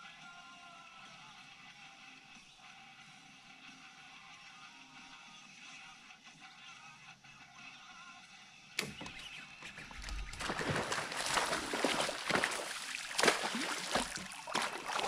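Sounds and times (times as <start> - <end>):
fish thrashing and splashing water: 9.8 - 15.0.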